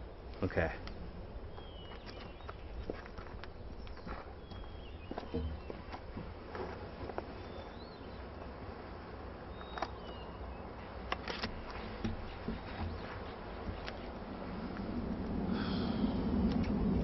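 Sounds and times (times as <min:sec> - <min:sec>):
low steady rumble: 0:11.9 - 0:17.0.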